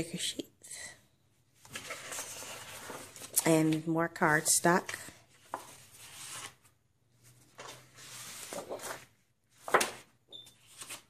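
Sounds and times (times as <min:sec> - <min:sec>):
paper sheets swishing: 0:07.6 - 0:10.0
paper flapping: 0:07.6 - 0:11.0.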